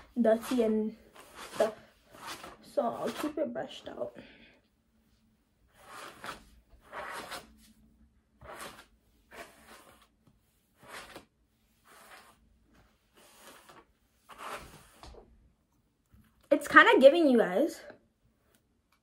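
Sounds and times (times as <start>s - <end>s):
hairbrush swishing through wig: 0.0s - 3.9s, 5.7s - 15.3s.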